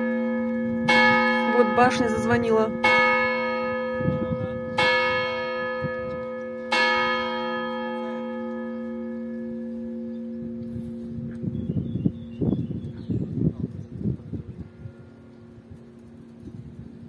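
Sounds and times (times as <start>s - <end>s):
clock tower bell striking: 0.0s - 11.2s.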